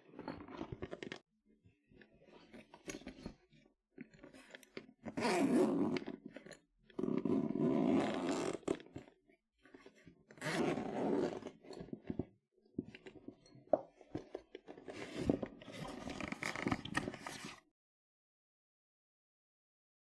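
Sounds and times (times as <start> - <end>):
zipper pulls clicking: 4.3 - 9.2, 10.3 - 11.9
zipper being pulled open: 5.0 - 9.2, 10.4 - 12.0, 14.8 - 17.6.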